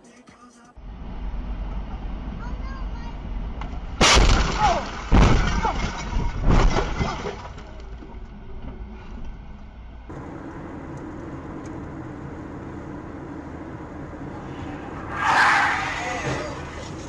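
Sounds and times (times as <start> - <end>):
debris striking windshield: 4.0 - 7.7
car driving at highway speed: 9.4 - 17.0.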